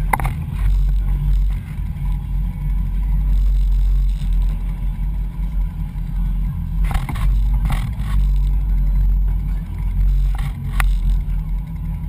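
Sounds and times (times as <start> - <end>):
sharp click: 0.0 - 1.1.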